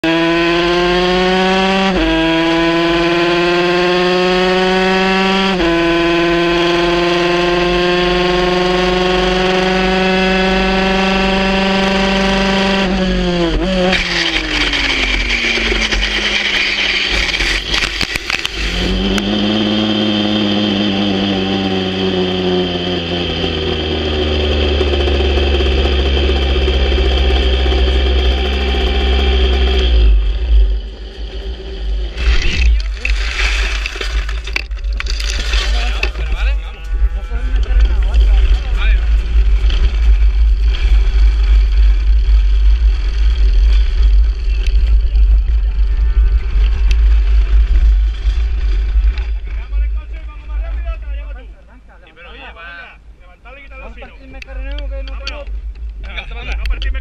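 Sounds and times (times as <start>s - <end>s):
motorcycle engine at high revs: 0.0s - 33.2s, 37.6s - 49.8s
motorcycle crashing into gravel: 32.2s - 36.4s.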